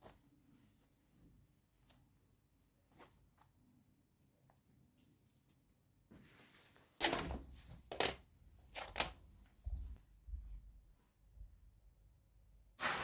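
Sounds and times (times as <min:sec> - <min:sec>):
soft rustle: 0:00.0 - 0:07.8.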